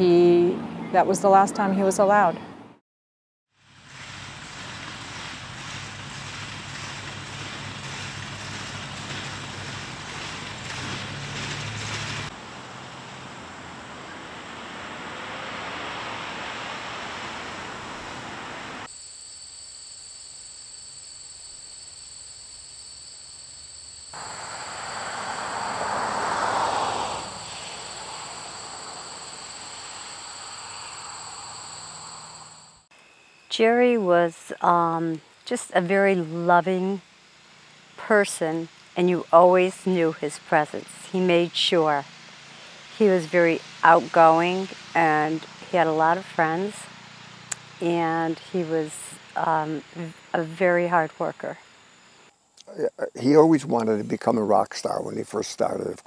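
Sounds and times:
tractor engine running: 3.7 - 15.3, 24.2 - 32.8
high insect drone: 11.1 - 55.9.

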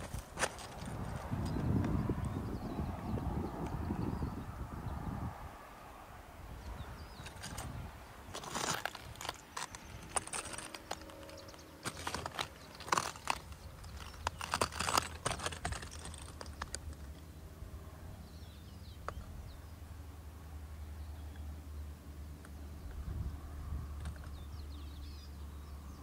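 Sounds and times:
crunching and clicking: 0.0 - 2.0, 7.2 - 17.3.

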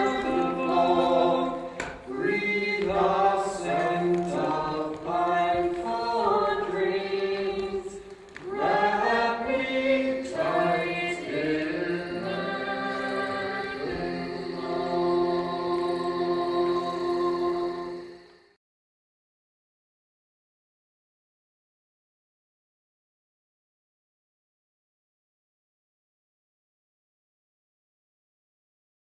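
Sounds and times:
choir singing: 0.0 - 18.6.

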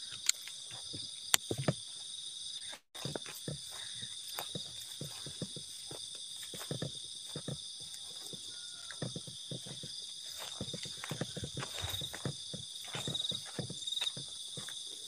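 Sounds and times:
night insects chorus: 0.0 - 15.0
footsteps crunching on forest floor: 0.1 - 15.0.

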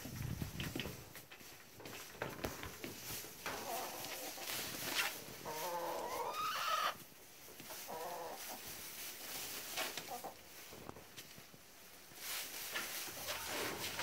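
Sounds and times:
hens scratching in wood shavings: 0.1 - 14.0
hens clucking: 2.4 - 10.8, 12.8 - 14.0.

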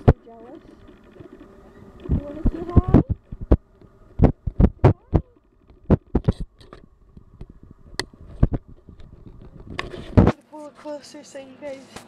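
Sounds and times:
cat face rubbing on microphone: 7.5 - 10.4.

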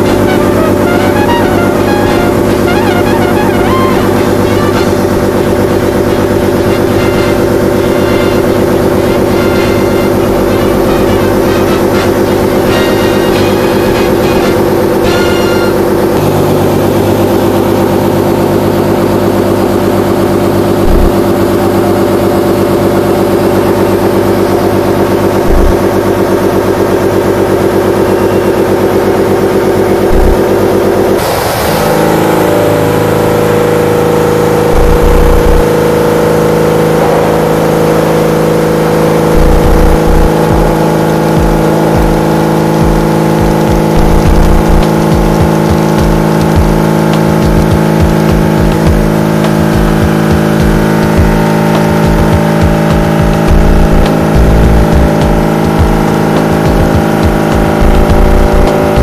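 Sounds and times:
milling machine cutting metal: 0.0 - 59.0.

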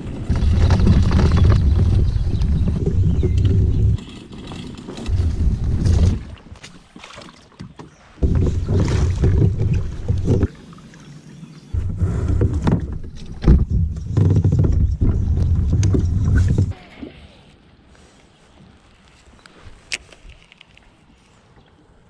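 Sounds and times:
plastic kayak hull rumbling: 0.0 - 16.8.

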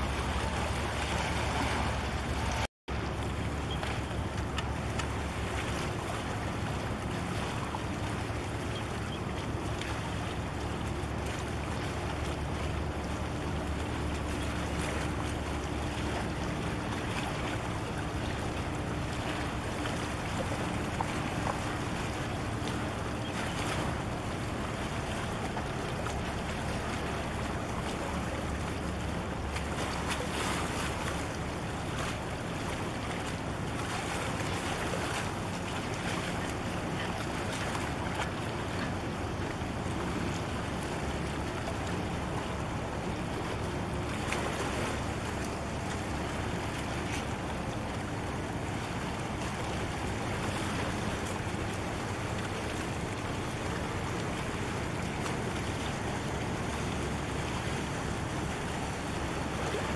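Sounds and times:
ship engine rumble: 0.0 - 59.9
water lapping: 0.0 - 59.9.

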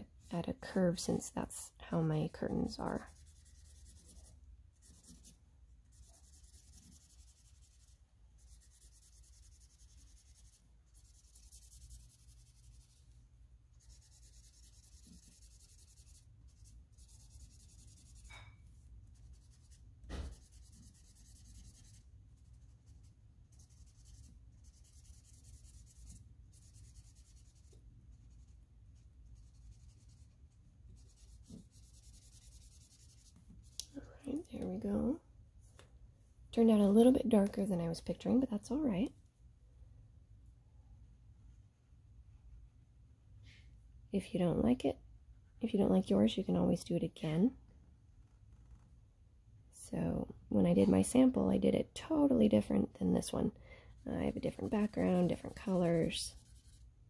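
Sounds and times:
marker rubbing on paper: 2.2 - 13.1, 13.7 - 33.8, 54.0 - 57.0.

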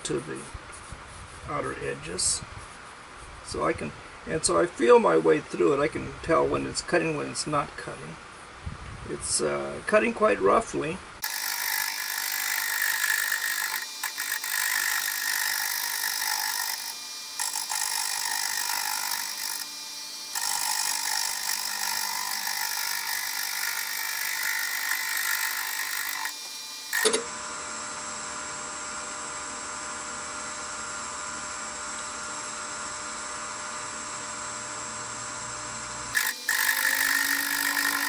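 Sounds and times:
lathe humming: 11.2 - 38.0
lathe tool cutting wood: 11.2 - 38.0.

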